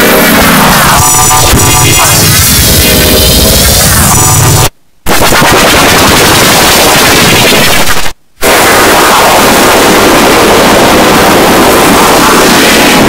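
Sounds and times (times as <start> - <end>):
loud dense broadband noise: 0.0 - 13.0.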